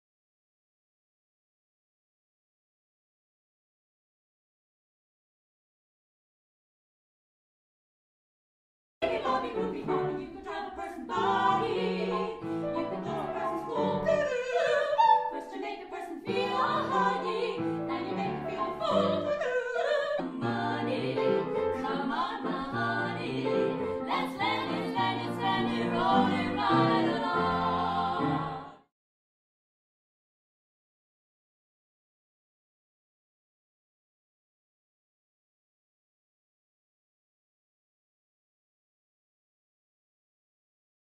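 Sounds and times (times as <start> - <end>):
female vocal trio singing: 9.0 - 28.9
piano: 9.0 - 28.9.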